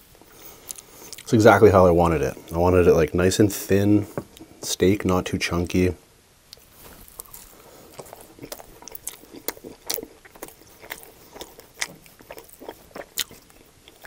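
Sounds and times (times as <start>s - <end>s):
biting and chewing food: 0.3s - 1.6s, 6.5s - 14.0s.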